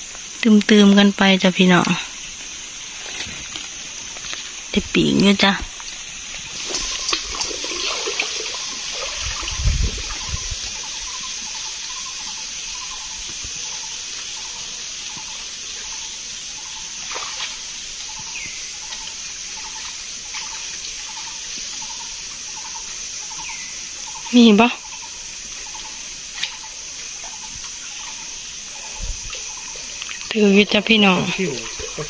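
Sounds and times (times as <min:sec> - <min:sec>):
steady high hiss: 0:00.0 - 0:32.0
person wading in shallow water: 0:06.0 - 0:10.9, 0:31.2 - 0:32.0.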